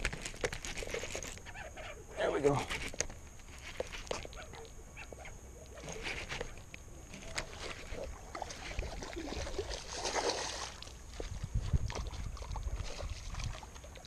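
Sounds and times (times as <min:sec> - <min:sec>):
fish splashing in water: 0:07.3 - 0:11.3.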